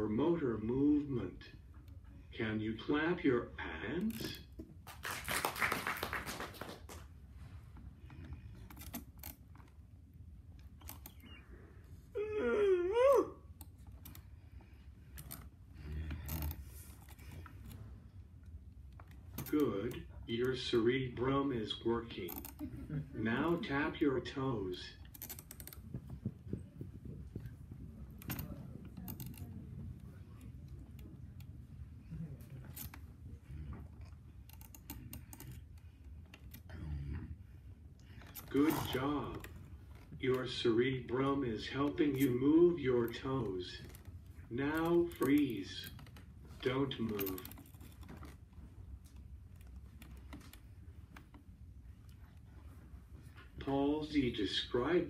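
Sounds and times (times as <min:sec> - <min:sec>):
people clapping: 0:04.8 - 0:07.1.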